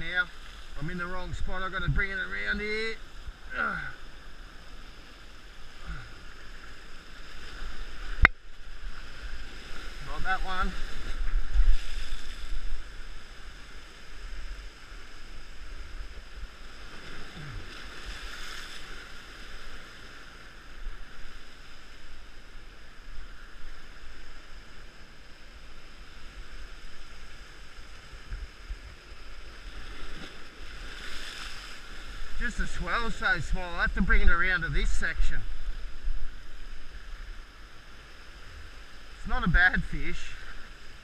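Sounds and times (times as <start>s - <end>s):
wind rumble on microphone: 7.3s - 18.5s, 32.0s - 37.3s.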